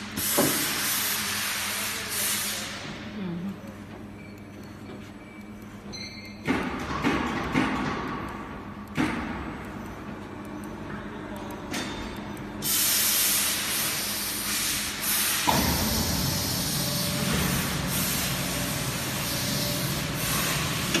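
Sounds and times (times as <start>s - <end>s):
loud steady hiss: 12.6s - 21.0s.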